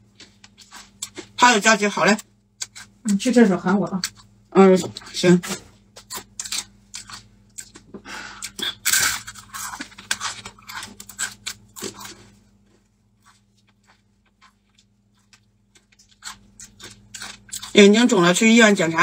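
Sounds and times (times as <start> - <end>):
dry noodles crunching: 0.0 - 1.4, 5.0 - 18.2.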